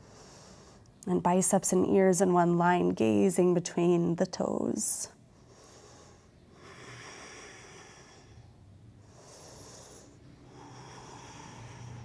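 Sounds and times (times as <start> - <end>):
person breathing slowly: 0.0 - 1.0, 5.3 - 12.0.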